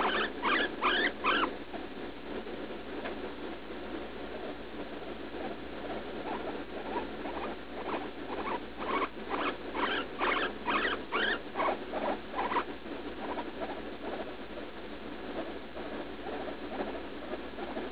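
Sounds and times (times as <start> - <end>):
guinea pig squeaking: 0.0 - 1.5, 6.2 - 13.8.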